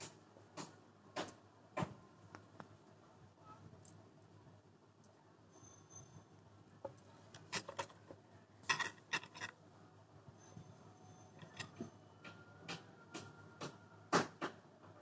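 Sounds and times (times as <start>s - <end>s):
thread rustling: 7.4s - 8.0s, 8.6s - 9.5s.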